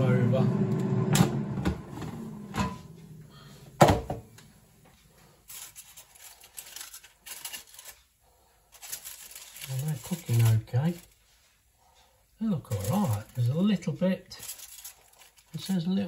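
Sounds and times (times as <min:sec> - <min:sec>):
air fryer humming: 0:00.0 - 0:05.3
loud thunk: 0:03.8 - 0:04.2
tongs clicking and scraping metal: 0:14.3 - 0:15.7.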